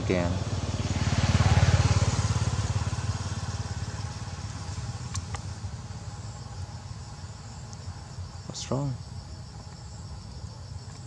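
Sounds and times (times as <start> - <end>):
passing vehicle engine: 0.0 - 7.0.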